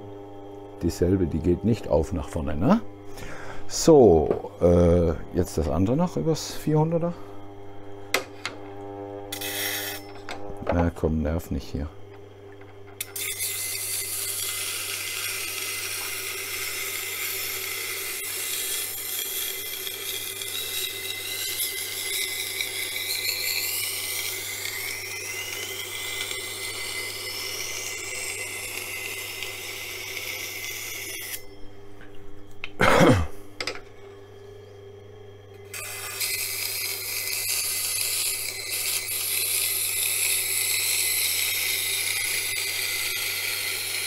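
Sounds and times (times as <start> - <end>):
grinder motor hum: 0.0 - 44.0
knife grinding on sharpening wheel: 9.3 - 10.5, 12.7 - 31.6, 35.6 - 44.0.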